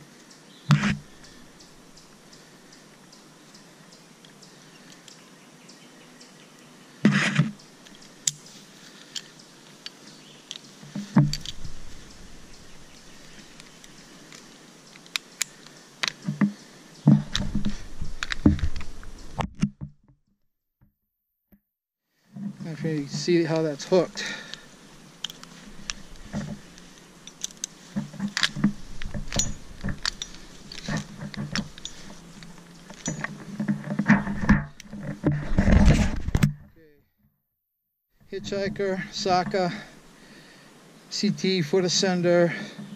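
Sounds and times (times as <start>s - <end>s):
climbing rope rubbing: 0.7s - 1.5s, 10.7s - 15.5s, 16.1s - 19.4s, 22.4s - 36.4s
metal carabiners clicking: 7.8s - 16.5s, 23.0s - 36.0s.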